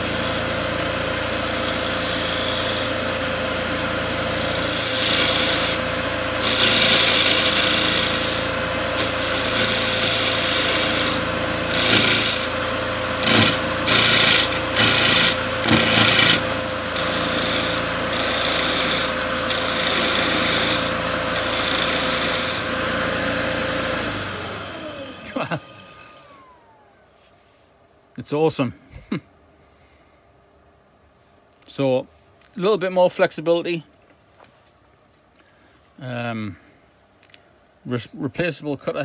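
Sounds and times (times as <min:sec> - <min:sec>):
cutter scraping spinning wood: 0:00.0 - 0:27.0
lathe motor hum: 0:00.0 - 0:27.1.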